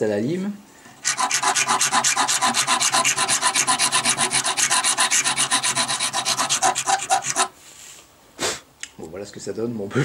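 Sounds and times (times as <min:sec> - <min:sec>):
hand file rasping on steel: 0:01.0 - 0:07.5.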